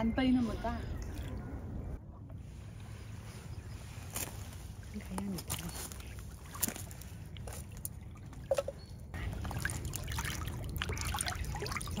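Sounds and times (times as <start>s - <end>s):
water trickling and splashing: 3.8s - 12.0s.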